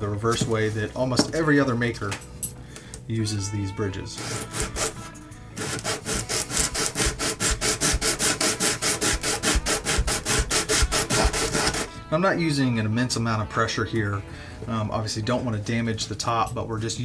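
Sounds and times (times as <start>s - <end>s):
sandpaper scratching strokes: 4.2s - 11.9s.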